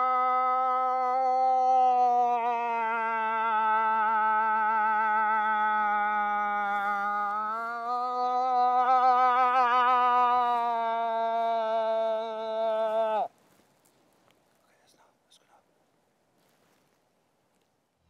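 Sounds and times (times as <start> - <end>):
moose call moan: 0.0 - 13.3.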